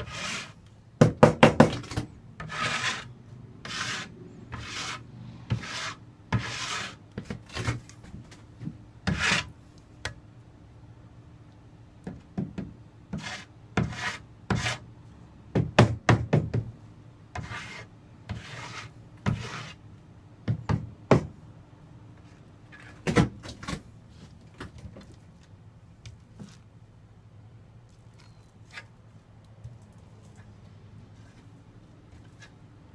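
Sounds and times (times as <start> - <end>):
steel trowel scraping adhesive: 0.0 - 0.6, 2.4 - 7.0, 17.4 - 19.8.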